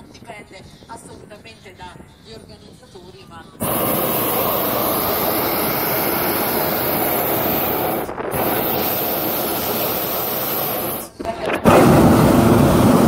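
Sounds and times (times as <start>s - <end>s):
propane burner firing: 3.6s - 13.0s.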